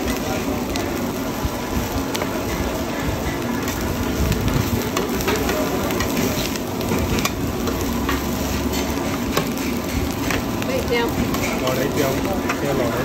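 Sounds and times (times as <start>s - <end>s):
eggs sizzling in oil: 0.0s - 13.0s.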